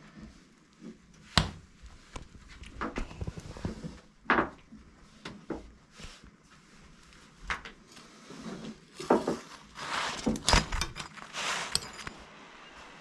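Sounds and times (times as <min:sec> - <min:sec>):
spatula scraping and clatter: 0:08.0 - 0:12.3.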